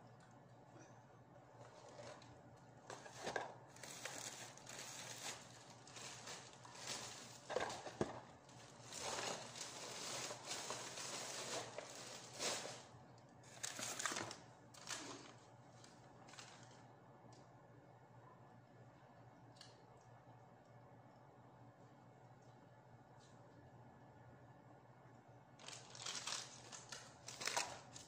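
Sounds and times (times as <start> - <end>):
paper rustling: 2.9 - 12.9, 25.6 - 28.0
plastic bag rustling: 2.9 - 16.8, 25.6 - 28.0.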